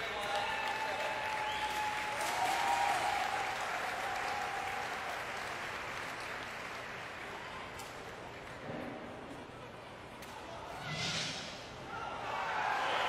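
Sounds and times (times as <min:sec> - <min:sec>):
crowd cheering and clapping: 0:00.0 - 0:08.6.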